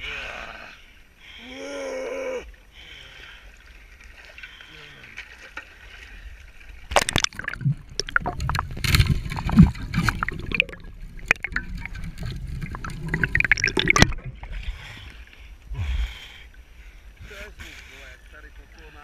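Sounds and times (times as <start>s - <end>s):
underwater gurgling and sloshing: 2.5s - 19.0s
underwater clicks and knocks: 6.9s - 14.5s
sharp water splash: 6.9s - 14.6s
low underwater rumble: 6.9s - 17.0s.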